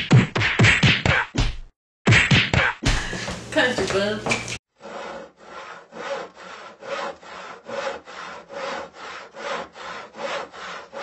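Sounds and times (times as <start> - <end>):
saw cutting pumpkin shell: 4.8 - 11.0.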